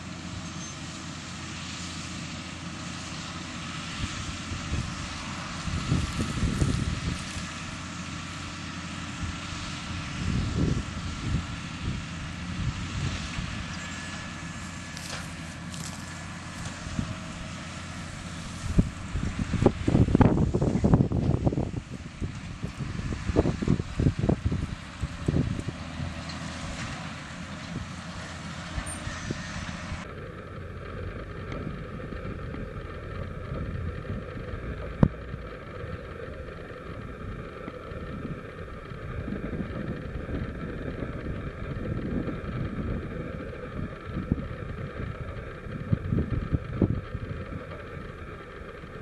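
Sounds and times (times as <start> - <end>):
bale stacker running: 0.0 - 49.0
tractor engine running: 0.0 - 49.0
wind buffeting microphone: 3.9 - 7.9, 9.2 - 14.0, 15.6 - 26.8, 31.4 - 49.0.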